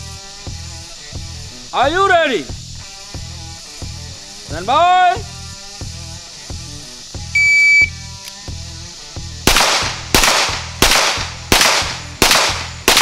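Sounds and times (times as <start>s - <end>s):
background music with steady beat: 0.0s - 13.0s
shot timer beep: 7.4s - 8.0s
pistol shots: 9.5s - 13.0s.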